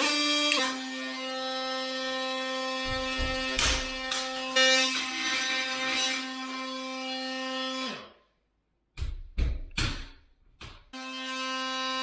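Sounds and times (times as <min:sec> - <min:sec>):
oscillating multi-tool buzzing: 0:00.0 - 0:08.2.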